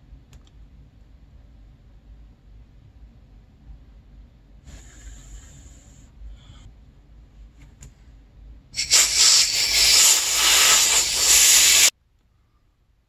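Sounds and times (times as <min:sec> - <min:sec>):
butane torch hissing: 0:08.8 - 0:11.9.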